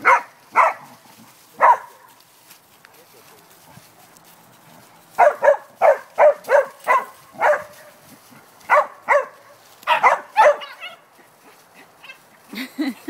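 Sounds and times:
dog barking: 0.0 - 1.0, 1.6 - 2.1, 5.2 - 8.0, 8.7 - 11.0.

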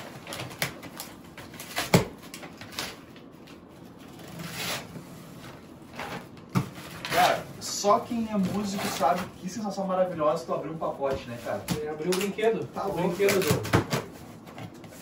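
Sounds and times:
box and packing material handled: 0.0 - 9.5.

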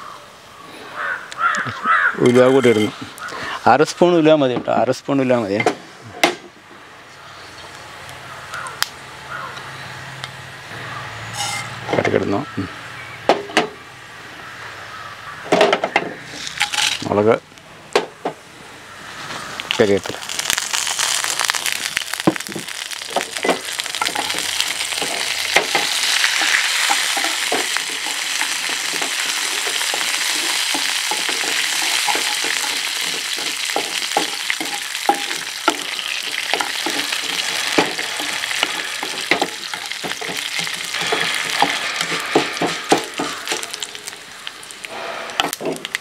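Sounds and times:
spices sizzling in hot oil: 19.0 - 46.0.

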